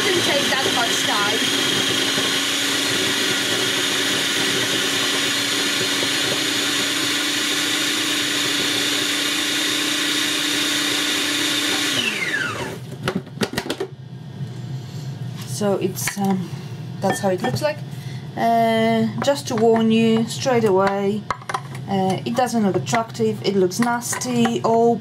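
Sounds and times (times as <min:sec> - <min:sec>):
food processor motor whine: 0:00.0 - 0:13.8.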